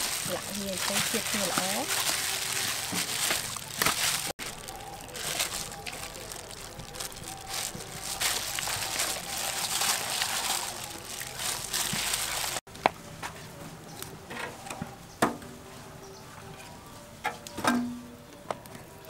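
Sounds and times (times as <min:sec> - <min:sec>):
plastic glove crinkling and squelching: 0:00.0 - 0:12.7.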